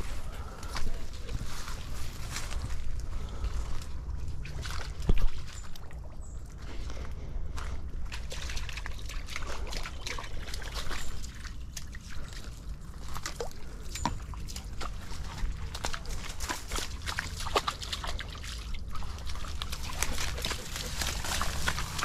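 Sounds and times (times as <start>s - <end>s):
dog splashing through water: 8.0s - 22.0s.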